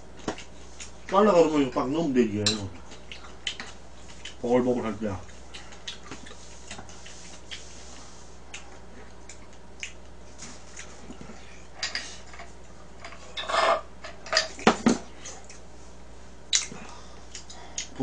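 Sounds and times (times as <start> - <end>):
cutlery clinking against a bowl: 2.4 - 2.6.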